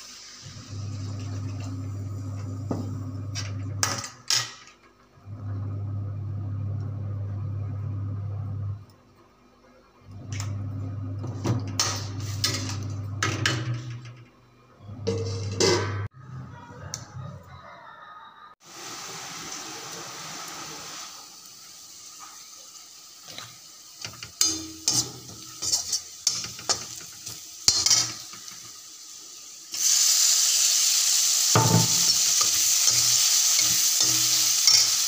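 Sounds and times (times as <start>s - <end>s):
spatula scraping metal pan: 15.1s - 16.1s, 24.4s - 26.9s.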